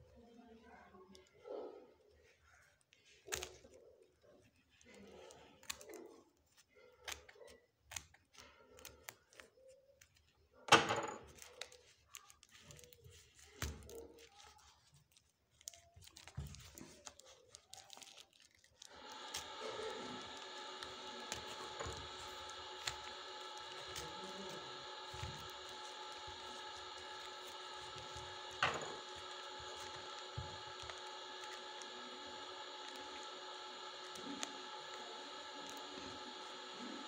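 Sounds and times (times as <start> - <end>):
steady hum: 18.9 - 37.0.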